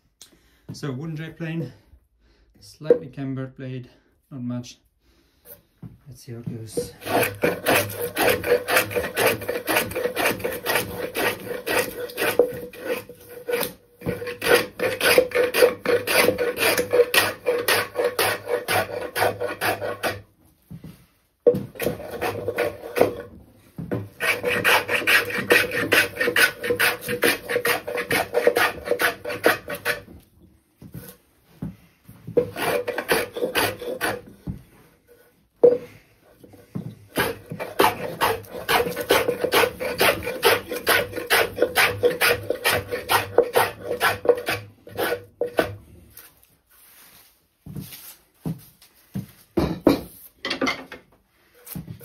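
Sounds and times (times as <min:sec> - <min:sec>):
hand plane scraping wood: 0:06.7 - 0:20.3, 0:21.5 - 0:30.2, 0:32.3 - 0:48.2.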